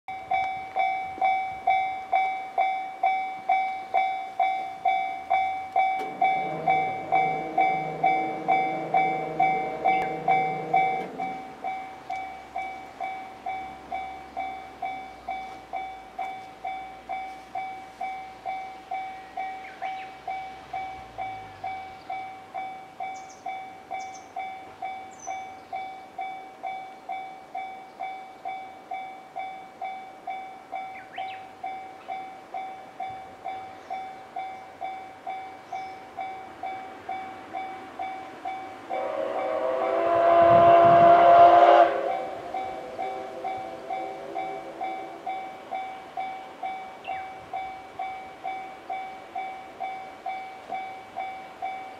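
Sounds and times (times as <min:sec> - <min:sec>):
level-crossing warning bell: 0:00.1 - 0:51.9
low hum: 0:04.6 - 0:16.2.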